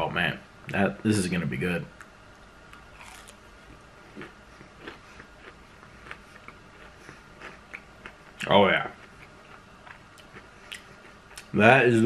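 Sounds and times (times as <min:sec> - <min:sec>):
person chewing crispy food: 0:02.8 - 0:03.4, 0:04.1 - 0:11.5.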